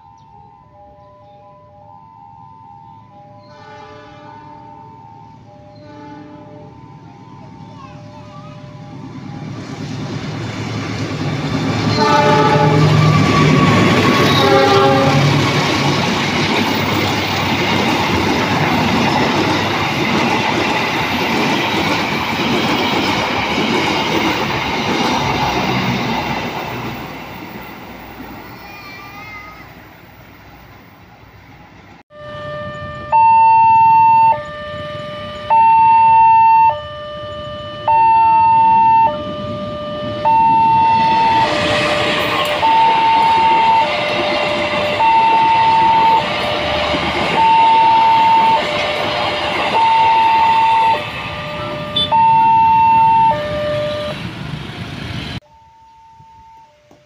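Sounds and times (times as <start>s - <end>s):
freight train rumbling: 2.9s - 55.5s
level crossing alarm two tones: 32.1s - 54.2s.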